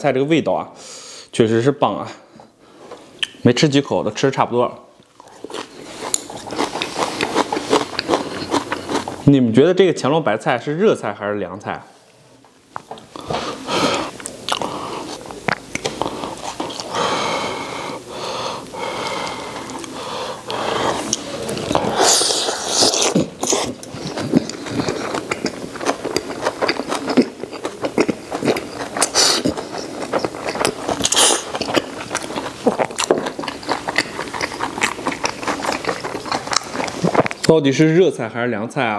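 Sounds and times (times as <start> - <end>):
man chewing crunchy food: 5.0 - 9.3, 12.8 - 37.5.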